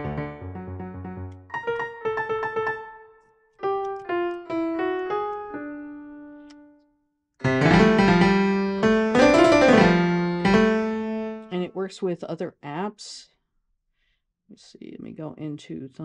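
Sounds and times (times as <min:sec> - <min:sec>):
loud piano chords: 0:00.0 - 0:06.7, 0:07.4 - 0:11.5
piano keyboard notes: 0:00.0 - 0:06.8, 0:07.4 - 0:11.5.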